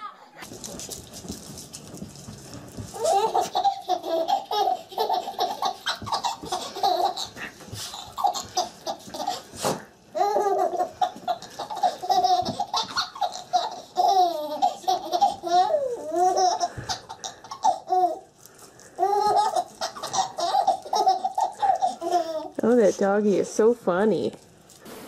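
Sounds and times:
baby laughing: 0:02.9 - 0:18.4, 0:19.0 - 0:22.6.

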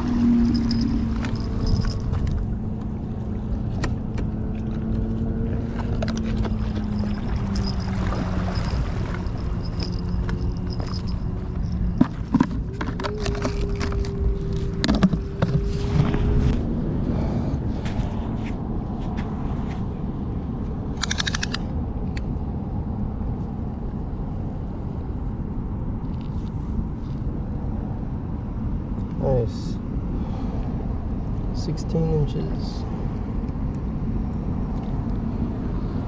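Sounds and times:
steady low hum: 0:00.0 - 0:36.0
steady low rumble: 0:00.0 - 0:36.0
footsteps on dirt path: 0:04.2 - 0:12.9, 0:17.8 - 0:19.9.

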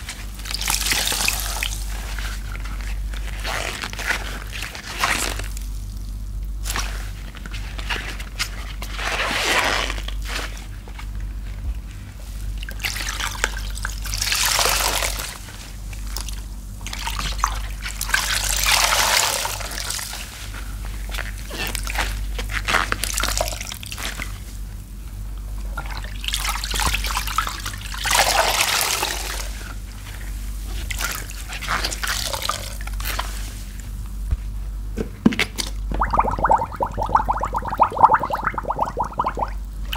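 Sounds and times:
steady low hum: 0:27.7 - 0:39.9
water trickling into tub: 0:35.9 - 0:39.9
soapy sponge squelching: 0:36.0 - 0:39.6.

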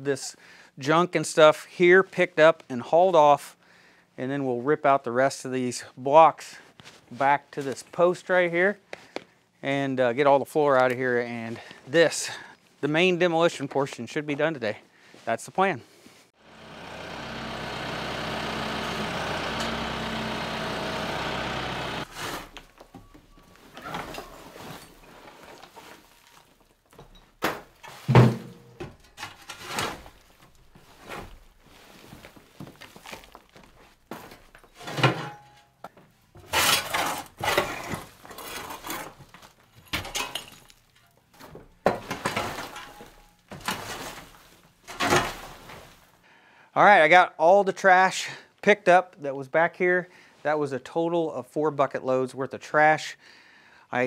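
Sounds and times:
tractor engine running: 0:16.4 - 0:22.1
rubble thuds and clatters: 0:16.9 - 0:46.1
shovel scraping wooden floorboards: 0:17.0 - 0:22.8, 0:23.6 - 0:26.7, 0:29.2 - 0:35.4, 0:36.4 - 0:40.8, 0:41.9 - 0:46.1.

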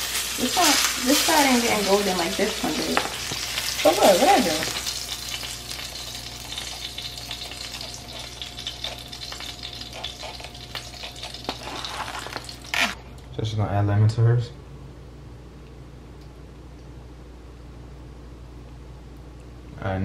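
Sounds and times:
fish sizzling in frying pan: 0:00.0 - 0:13.0.

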